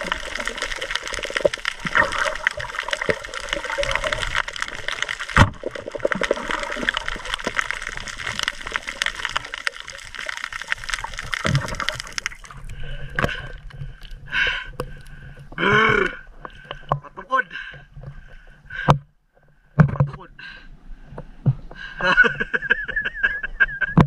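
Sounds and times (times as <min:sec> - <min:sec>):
underwater rushing water: 0:00.0 - 0:17.0
crackle of fine clicks: 0:00.0 - 0:20.1.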